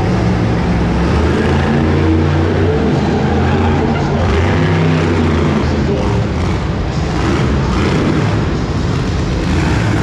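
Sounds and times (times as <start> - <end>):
monster truck engine revving: 0.0 - 10.0.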